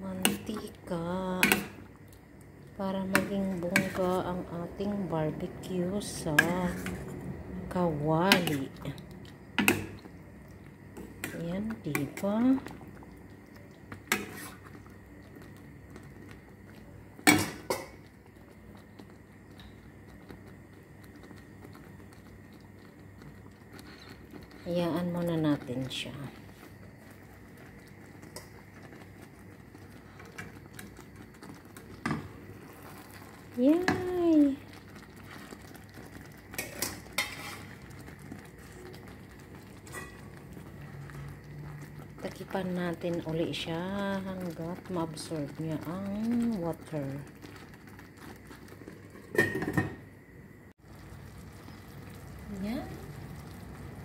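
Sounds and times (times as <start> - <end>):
sauce simmering crackle: 0.0 - 54.0
utensil clanking on metal pan: 36.6 - 37.7, 39.9 - 40.3
metal utensil clinking on pan: 39.9 - 40.2.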